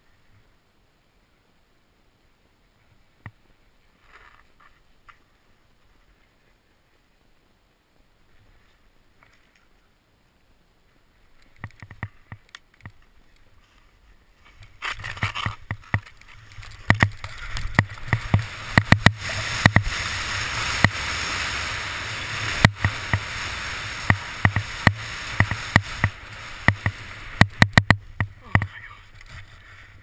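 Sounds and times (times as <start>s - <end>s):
skis rushing over snow: 12.9s - 30.0s
sharp knocks and clatters: 14.9s - 20.0s.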